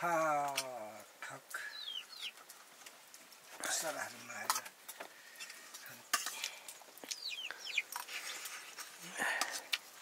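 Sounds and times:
bird chirping: 0:01.6 - 0:02.5, 0:07.0 - 0:08.4.

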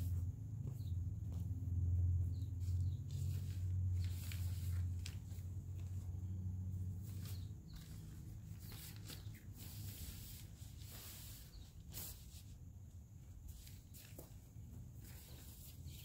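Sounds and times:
low steady hum: 0:00.0 - 0:16.0
tent fabric rustling: 0:02.6 - 0:12.6.

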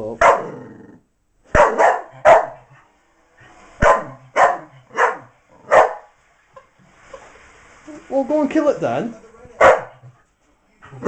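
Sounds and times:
dog barking: 0:00.2 - 0:00.6, 0:01.5 - 0:02.7, 0:03.8 - 0:06.1, 0:09.6 - 0:10.0.

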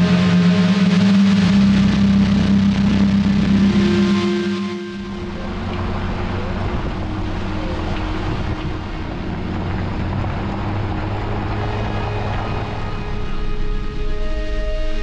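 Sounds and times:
car engine hum: 0:00.0 - 0:15.0
wind on the microphone: 0:05.4 - 0:15.0.

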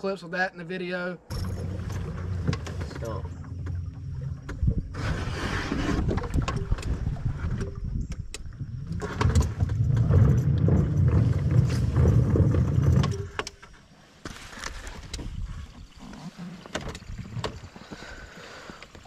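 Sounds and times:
boat engine rumble: 0:01.2 - 0:19.0
water swishing along hull: 0:01.3 - 0:19.0.

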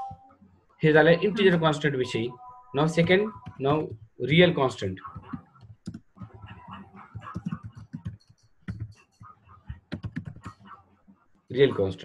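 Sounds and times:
typing on computer keyboard: 0:07.1 - 0:09.0, 0:09.9 - 0:10.6.

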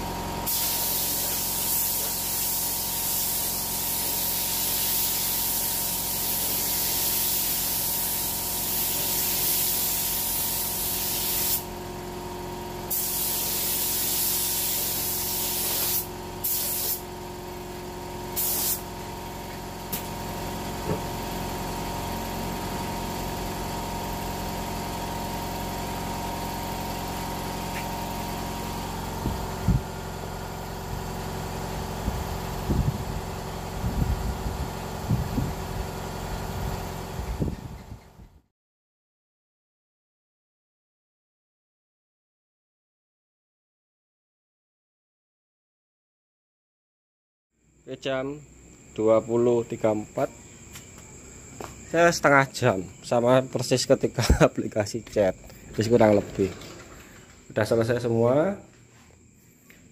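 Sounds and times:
spray gun hissing: 0:00.4 - 0:11.7, 0:12.9 - 0:17.1, 0:18.3 - 0:19.0
steady hum: 0:12.9 - 0:35.7.

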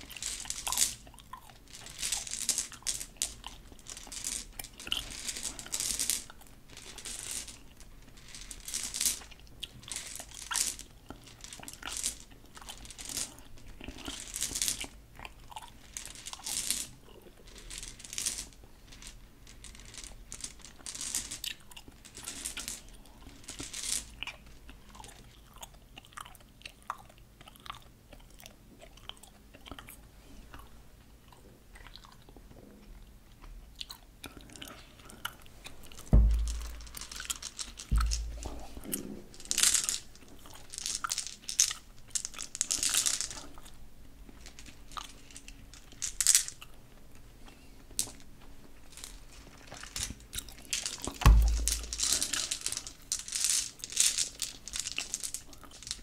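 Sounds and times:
gum pellets clattering: 0:00.0 - 0:16.9, 0:35.1 - 0:43.7, 0:49.0 - 0:56.0.

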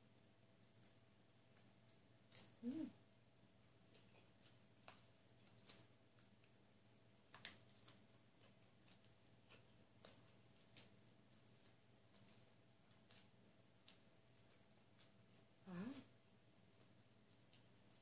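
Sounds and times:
faint chewing: 0:00.6 - 0:18.0.

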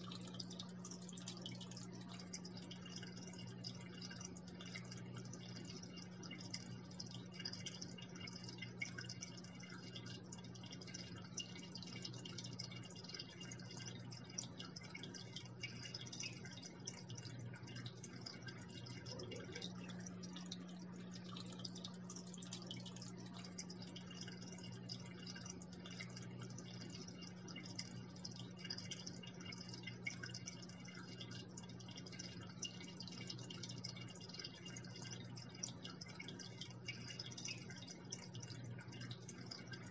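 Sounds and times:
steady low hum: 0:00.0 - 0:39.9
water trickling into aquarium: 0:00.0 - 0:39.9.

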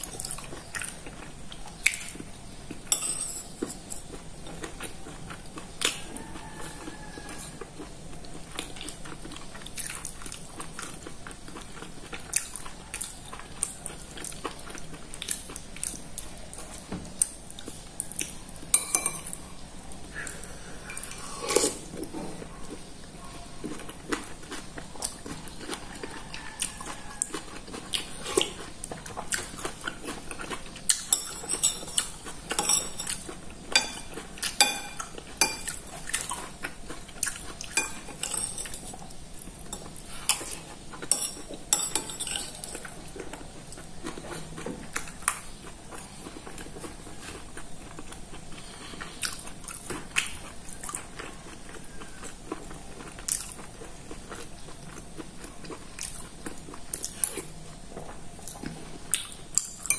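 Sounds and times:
chewing: 0:00.0 - 0:59.9
metal spoon clinking ceramic bowl: 0:02.9 - 0:04.1, 0:18.7 - 0:19.4, 0:31.0 - 0:33.2, 0:33.8 - 0:35.8, 0:37.8 - 0:38.8, 0:39.7 - 0:42.8.

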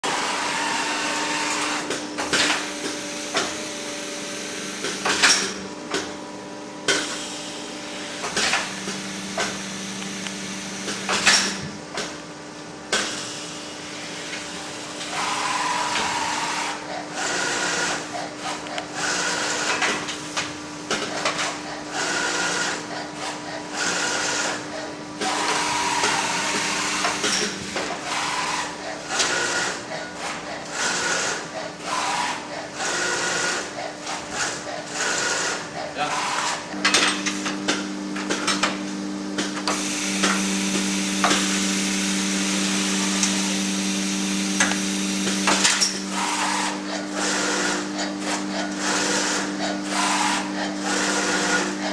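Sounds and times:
machine hum: 0:00.0 - 0:51.9
sharp clacks of moving parts: 0:05.0 - 0:06.1, 0:45.4 - 0:46.0
short motor whines: 0:15.0 - 0:16.8, 0:25.2 - 0:29.8.

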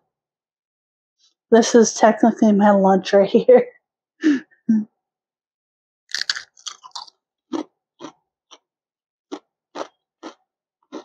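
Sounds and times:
chewing: 0:06.1 - 0:08.2, 0:09.3 - 0:11.0
crunchy bite into potato chip: 0:06.1 - 0:08.2.

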